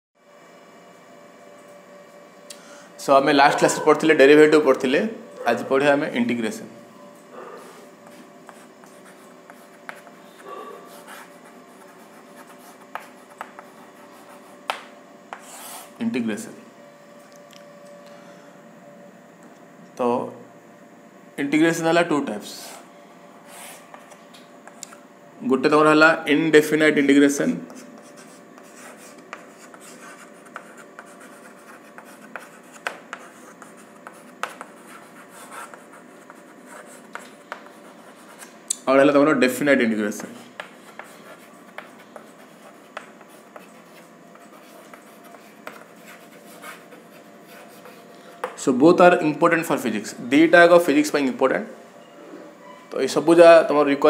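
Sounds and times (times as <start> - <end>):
chalk scratching on blackboard: 7.6 - 16.0, 23.5 - 24.0, 27.7 - 38.5, 40.3 - 48.1
chalk tapping on board: 8.1 - 10.2, 12.2 - 13.7, 14.3 - 15.7, 27.7 - 36.4, 37.0 - 38.5, 40.2 - 43.8.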